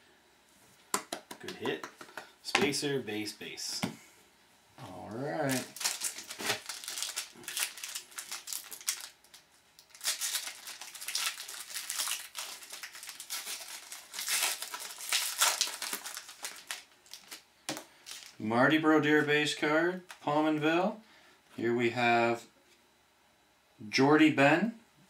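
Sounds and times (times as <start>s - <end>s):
cards rustling: 5.4s - 18.4s
foil wrapper crinkling: 5.4s - 18.4s.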